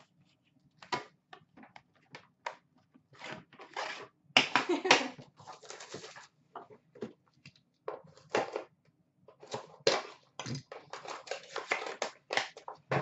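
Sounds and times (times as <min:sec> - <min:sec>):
card packaging rustling and crinkling: 0:05.4 - 0:06.4, 0:09.4 - 0:13.0.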